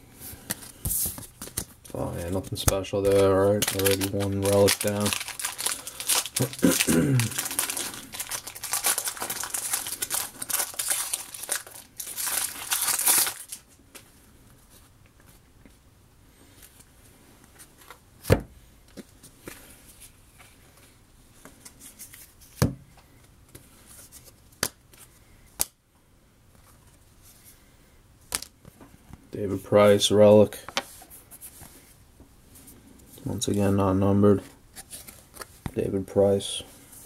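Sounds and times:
wrapper crinkling and tearing: 0:03.1 - 0:13.8.

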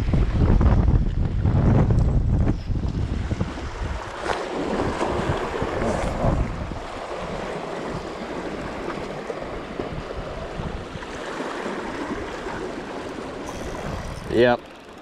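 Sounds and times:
wind buffeting microphone: 0:00.0 - 0:14.7
sea washing against rocks: 0:02.8 - 0:14.6.

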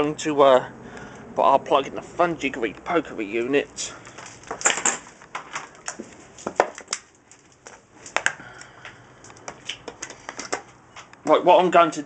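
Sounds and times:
cable rustling: 0:03.9 - 0:11.2.

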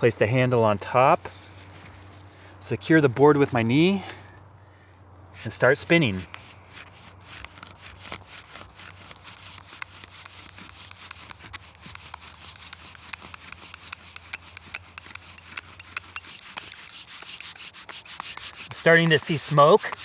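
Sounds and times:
bow drill spindle grinding: 0:05.4 - 0:20.0.

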